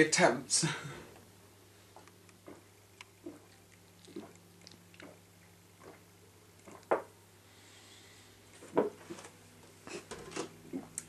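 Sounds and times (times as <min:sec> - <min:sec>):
person gulping milk: 0:01.9 - 0:07.1, 0:09.9 - 0:11.0.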